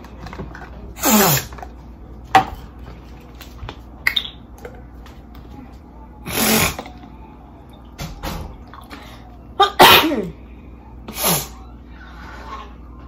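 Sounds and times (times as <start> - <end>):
woman sneezing: 9.6 - 10.4.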